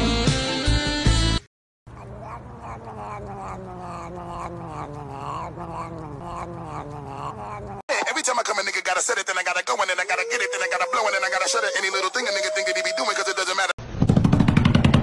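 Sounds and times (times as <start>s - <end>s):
low wavering cat call: 1.9s - 7.8s, 9.9s - 13.7s.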